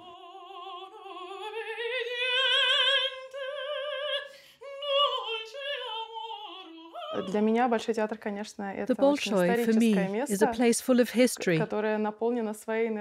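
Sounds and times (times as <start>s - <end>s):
woman singing vocal warm-up: 0.0s - 7.8s.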